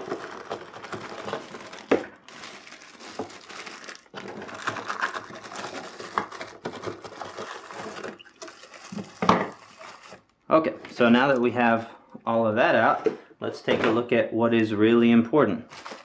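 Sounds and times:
plastic and cardboard rustling: 0.0 - 11.7, 15.7 - 16.0.

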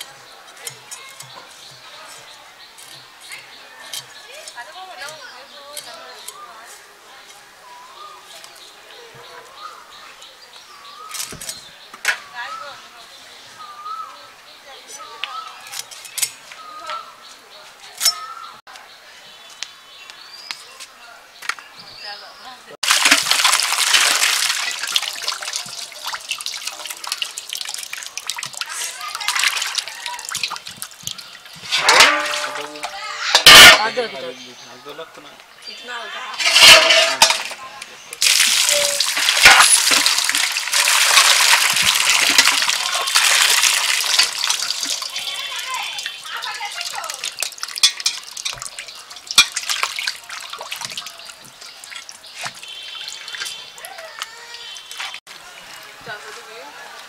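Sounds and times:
water gushing from pump spout: 22.8 - 32.9, 38.2 - 56.7
water sloshing in metal basin: 22.8 - 33.9, 36.4 - 37.6, 38.2 - 56.2.

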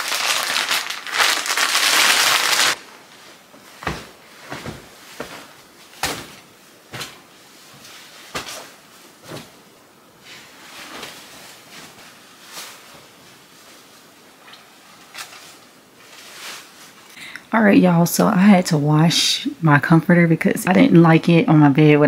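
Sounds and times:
objects knocking and rustling: 3.2 - 9.7.

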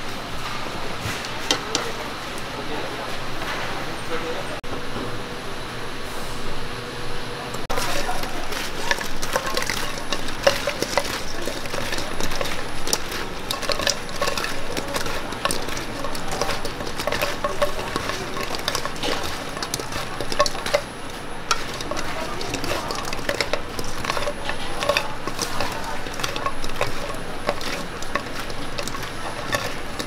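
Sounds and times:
metal cookware clattering and scraping: 1.0 - 2.1, 7.7 - 30.0.

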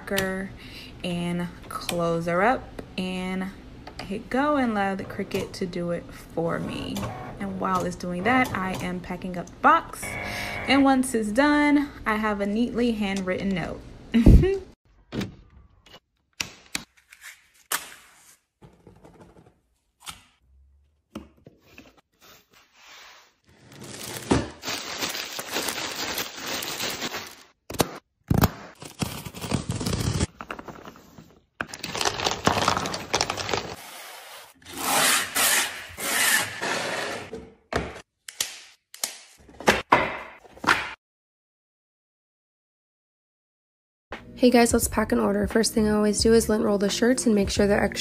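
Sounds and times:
plastic wrapping crinkling: 23.6 - 27.6, 31.7 - 33.8.

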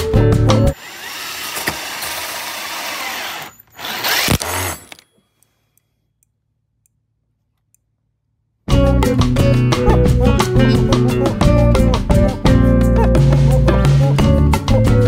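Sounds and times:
power drill driving screw: 0.8 - 5.1.

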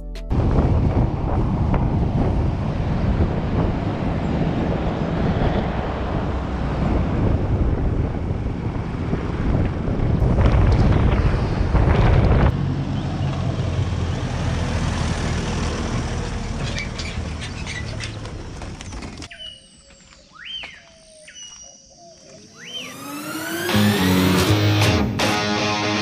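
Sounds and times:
wind buffeting microphone: 0.3 - 12.6
bird chirping: 16.7 - 23.7.

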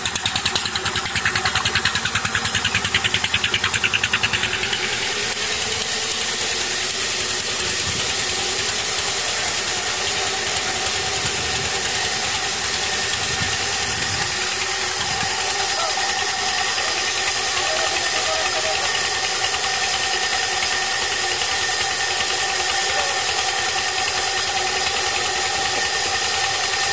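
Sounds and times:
band saw whirring: 0.0 - 26.9.

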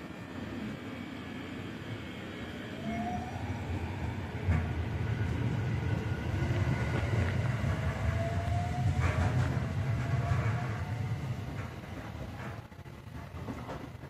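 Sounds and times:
low rumble of wheels: 3.2 - 14.0.

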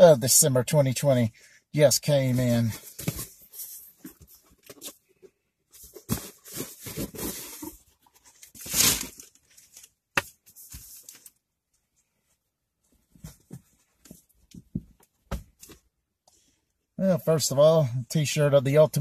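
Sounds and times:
box tearing and rustling: 5.9 - 7.8, 8.4 - 9.7.

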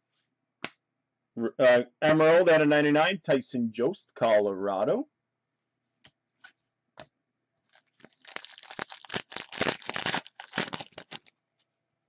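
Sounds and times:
plastic wrapper crinkling and tearing: 7.6 - 11.4.

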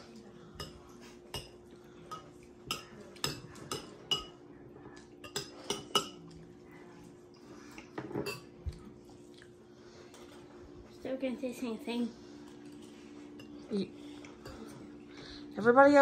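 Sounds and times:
faint steady hum: 0.0 - 16.0
spoons clinking on ceramic bowls: 0.6 - 4.4, 5.2 - 6.3.

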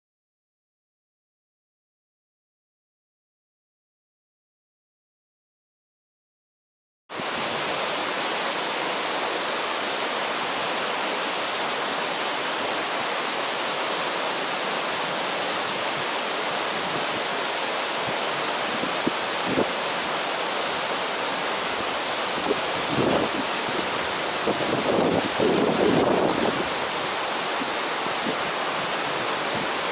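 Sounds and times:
river rapids rushing: 7.1 - 29.9.

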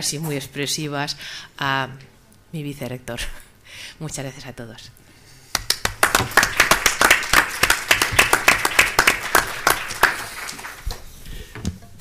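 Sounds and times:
crowd applauding: 5.6 - 11.0.

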